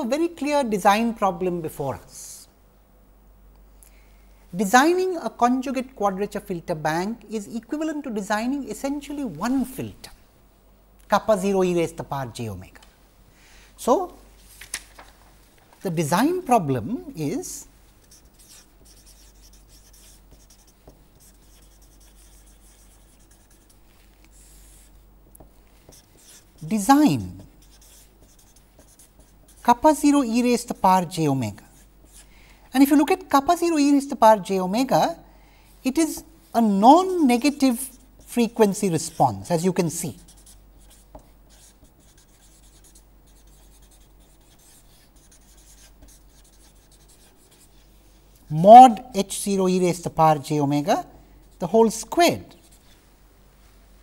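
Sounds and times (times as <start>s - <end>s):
steady low hum: 0.0s - 54.0s
marker scratching on paper: 18.0s - 32.3s, 37.1s - 48.1s, 51.4s - 53.0s.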